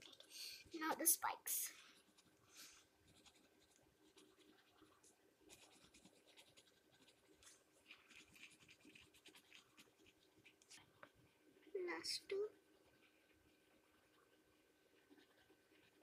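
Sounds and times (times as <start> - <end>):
pencil scratching on paper: 1.7 - 10.8, 13.0 - 16.0.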